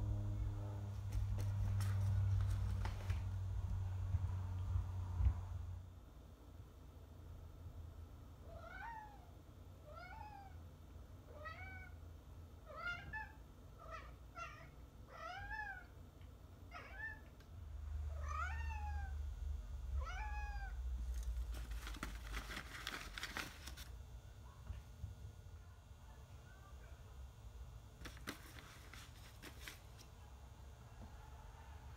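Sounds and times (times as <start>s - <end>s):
paper rustling and crinkling: 1.0s - 3.4s, 21.0s - 24.0s, 28.0s - 30.1s
cat meowing: 20.0s - 20.8s.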